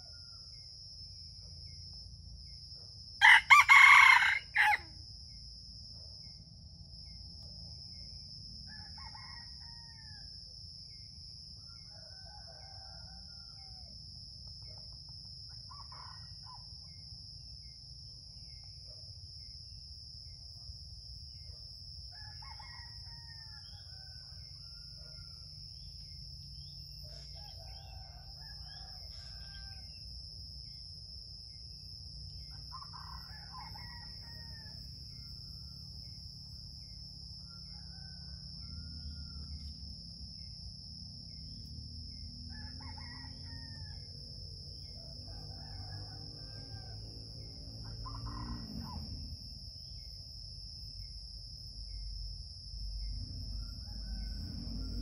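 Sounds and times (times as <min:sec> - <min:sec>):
rooster crowing: 0:03.2 - 0:05.0, 0:08.6 - 0:10.4, 0:11.6 - 0:14.1, 0:22.1 - 0:25.9, 0:26.6 - 0:30.1, 0:32.5 - 0:36.1, 0:37.2 - 0:39.8, 0:42.1 - 0:44.2, 0:44.8 - 0:49.5, 0:53.1 - 0:55.0.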